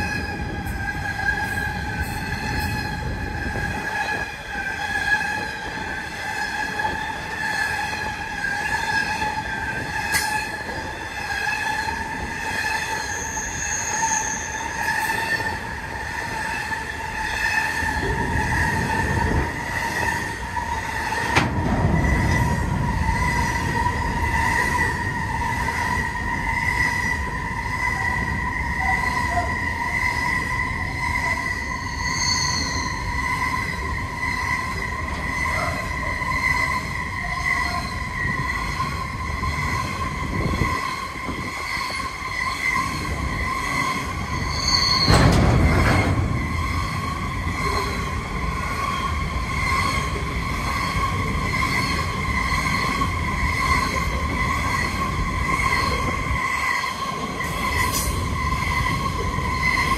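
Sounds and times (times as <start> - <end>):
train wagons clattering: 0.0 - 59.9
train wheel squeal: 0.0 - 59.9
wheels rumbling on rails: 0.0 - 59.9.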